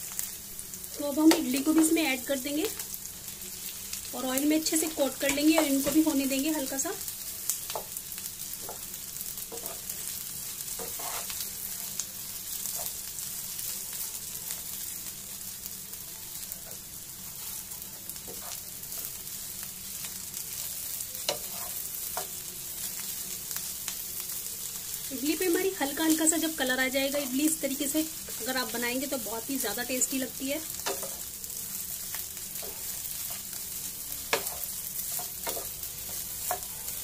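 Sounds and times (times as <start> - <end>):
food sizzling in oil: 0.0 - 37.0
wooden spatula scraping pan: 10.8 - 11.4, 18.3 - 18.6, 21.3 - 22.3.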